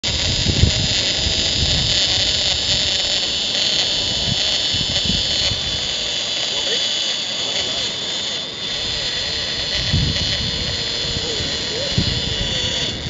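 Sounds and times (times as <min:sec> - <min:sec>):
fishing reel drag whining: 0:00.0 - 0:13.0
wind buffeting microphone: 0:00.0 - 0:13.0.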